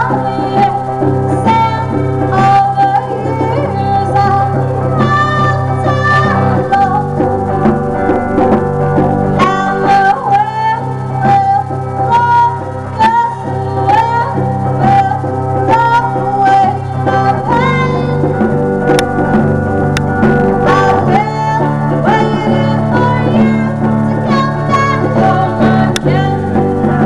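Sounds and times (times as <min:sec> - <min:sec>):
woman singing: 0:00.0 - 0:07.2, 0:09.4 - 0:18.3, 0:20.6 - 0:27.0
drums keeping steady beat: 0:00.0 - 0:27.0
electric guitar: 0:00.0 - 0:27.0.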